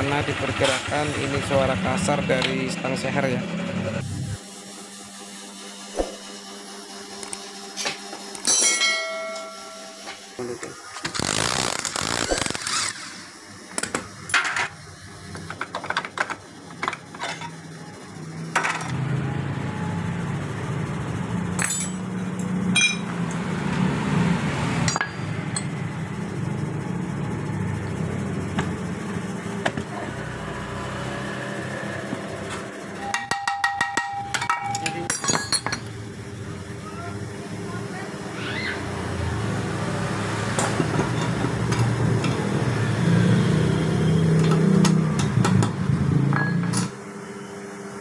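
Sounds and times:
hand tools clinking on metal: 0:08.4 - 0:09.8, 0:21.6 - 0:23.1, 0:33.0 - 0:35.9.

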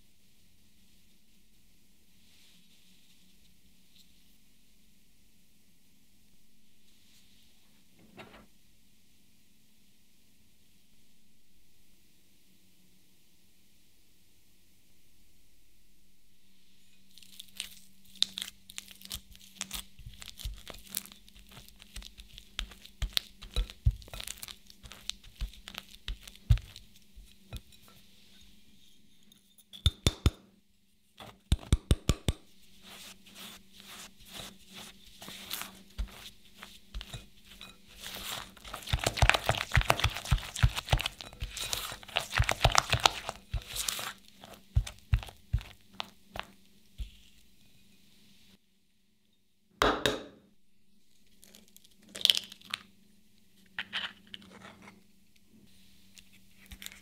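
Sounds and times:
spatula scraping glass bowl: 0:20.4 - 0:29.7, 0:32.8 - 0:47.9.

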